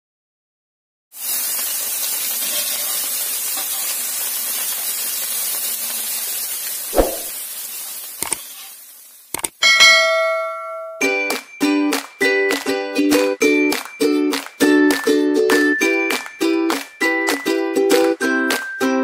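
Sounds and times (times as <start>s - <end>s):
fish sizzling in hot oil: 1.1s - 9.6s.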